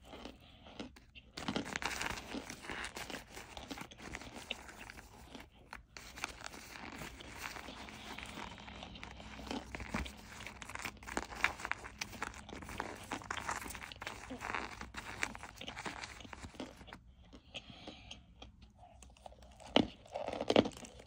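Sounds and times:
cornstarch chunks crunching: 0.0 - 17.0, 18.4 - 21.0.

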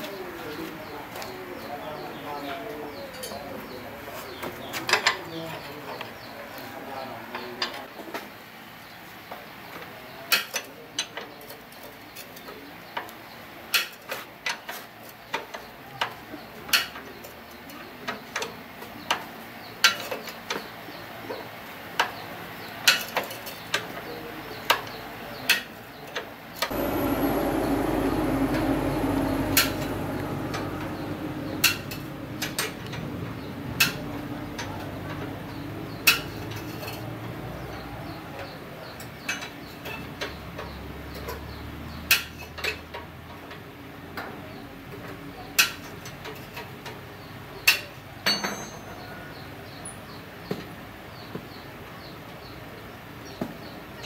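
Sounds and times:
low rumble: 26.7 - 33.6.

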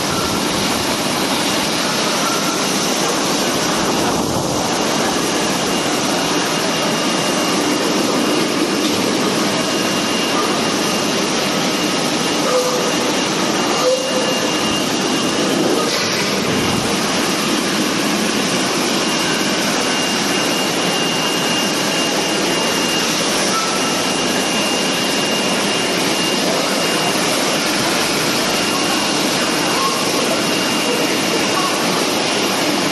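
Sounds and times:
water spraying in machine: 0.0 - 32.9
faint high tone: 29.7 - 30.2.

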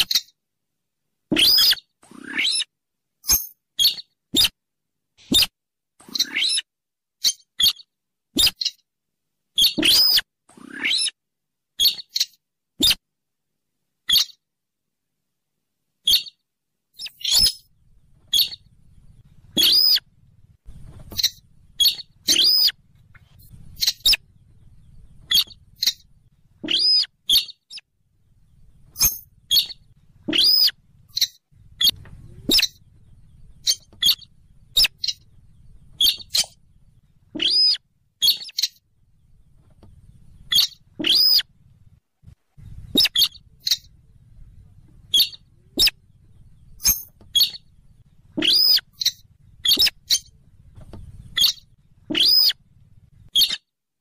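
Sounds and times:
faint low rumble: 17.1 - 53.4
rail bird calling: 18.3 - 20.0, 21.0 - 38.8, 40.0 - 41.6, 42.6 - 50.4, 51.1 - 52.6.

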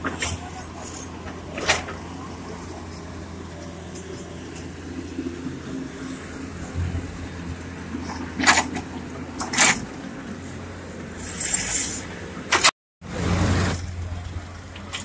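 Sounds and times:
diesel engines of heavy machinery: 0.0 - 15.0.

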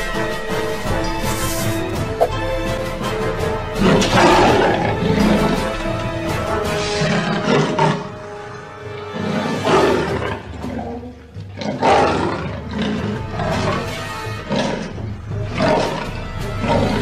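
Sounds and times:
background music: 0.0 - 17.0
big cat roaring and snarling: 3.8 - 5.6, 9.1 - 17.0.

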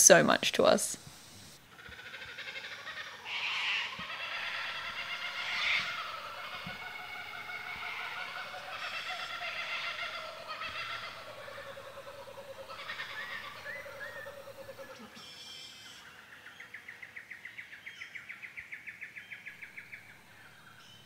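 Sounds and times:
kookaburra laughing call: 1.7 - 16.1
bird falling tone: 3.2 - 15.0.

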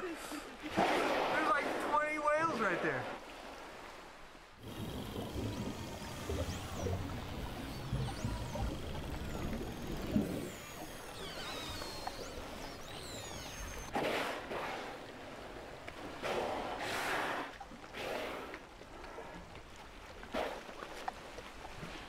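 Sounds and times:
whale breathy blows: 16.2 - 19.4.

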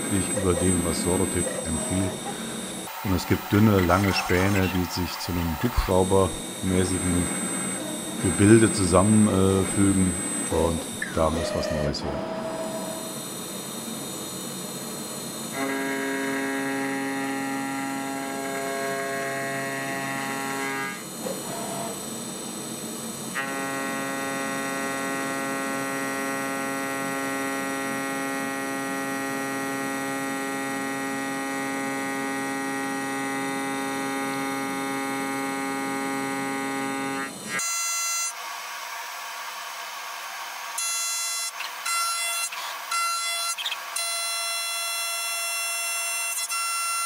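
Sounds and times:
milling machine hum: 0.0 - 37.6.

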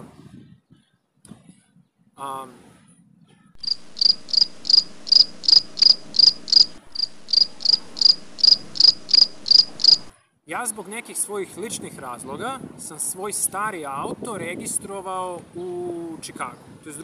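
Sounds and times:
cricket chirping: 3.6 - 10.1.

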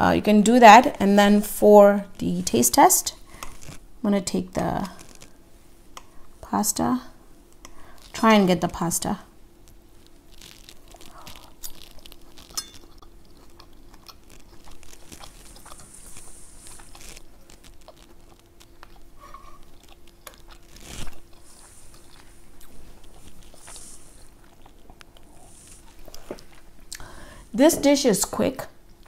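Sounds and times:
faint steady hum: 0.0 - 29.0
person chewing: 3.3 - 3.8, 4.8 - 6.2, 9.6 - 27.2.

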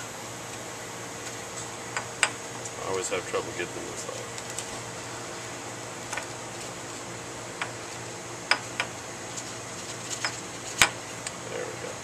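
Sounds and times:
faint hum: 0.0 - 12.0
aluminium foil crinkling: 9.2 - 10.8.

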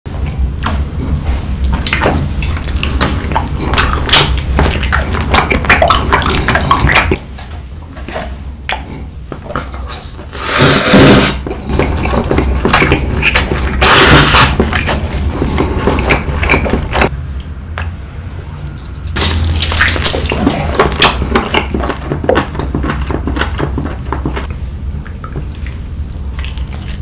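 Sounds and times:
wet chewing and smacking: 1.6 - 9.7, 11.4 - 27.0
noodle slurp: 10.2 - 17.0.

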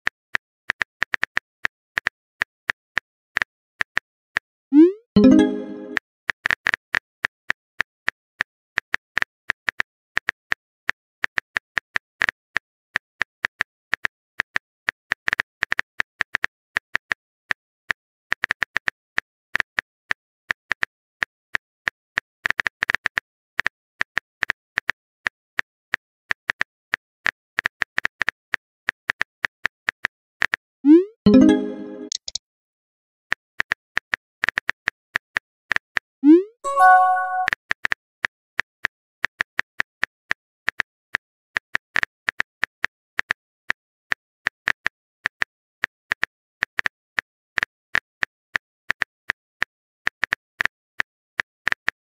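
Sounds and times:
phone keyboard typing clicks: 31.3 - 32.4, 36.7 - 37.5.

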